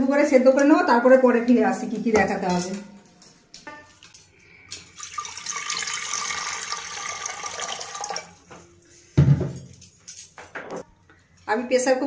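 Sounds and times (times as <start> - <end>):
water pouring into metal pot: 4.8 - 8.4.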